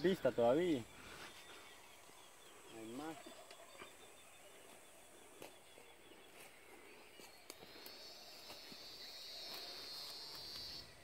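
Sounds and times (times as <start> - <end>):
insect buzzing: 7.7 - 11.0.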